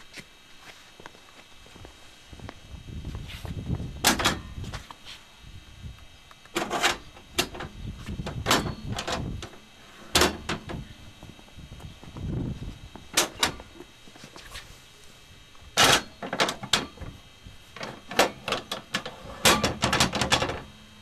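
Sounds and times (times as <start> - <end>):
footsteps on concrete: 0.0 - 3.7
metal clicks and clanks of jacks: 13.2 - 13.8, 15.8 - 17.0.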